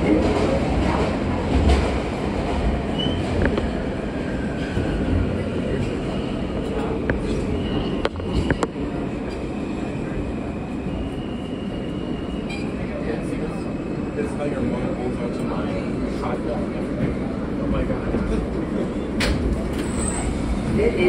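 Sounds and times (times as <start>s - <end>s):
subway car wheels rumbling: 0.0s - 21.0s
high wheel squeal: 19.8s - 20.4s.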